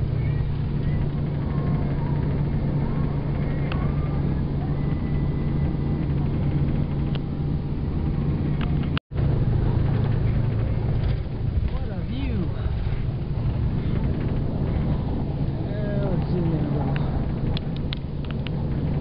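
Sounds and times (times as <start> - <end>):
low hum: 0.0 - 19.0
vehicle engine and tyres droning: 0.0 - 19.0.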